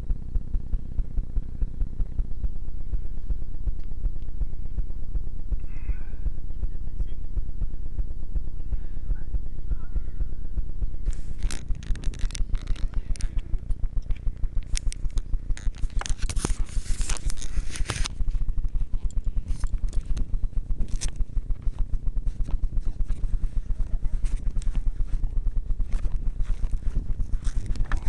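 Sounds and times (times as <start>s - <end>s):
motorcycle engine idling: 0.0s - 28.0s
scraping against microphone: 11.0s - 14.3s, 15.1s - 20.2s.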